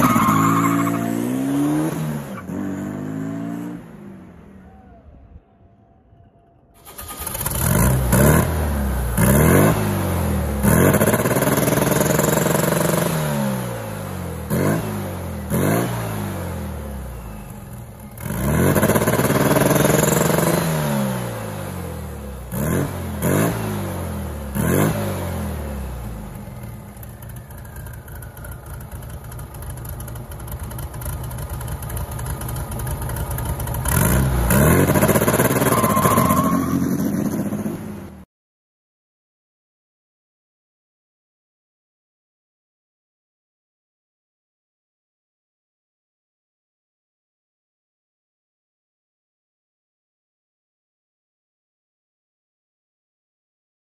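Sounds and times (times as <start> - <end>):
car engine revving and idling: 6.9 - 38.2.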